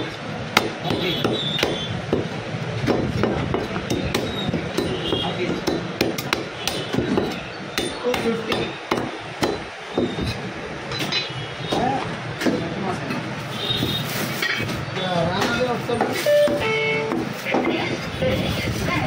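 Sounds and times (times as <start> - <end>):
cleaver chopping meat on block: 0.5 - 10.2.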